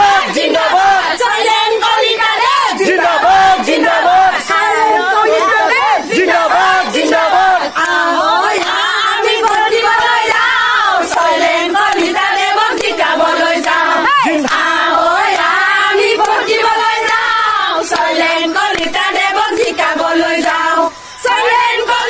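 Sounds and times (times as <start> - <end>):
crowd chanting and cheering: 0.0 - 22.0.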